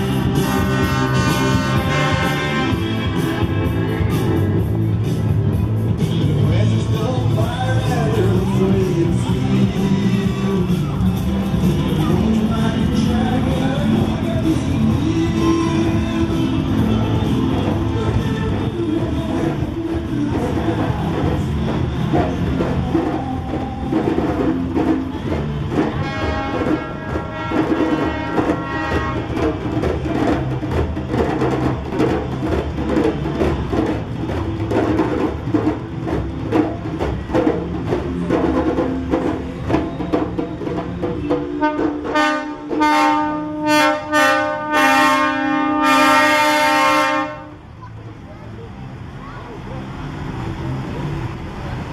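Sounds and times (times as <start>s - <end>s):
lorry air horn blasts: 0.3s - 3.7s, 26.0s - 29.4s, 41.6s - 47.6s
djembe hand drums: 16.8s - 43.2s.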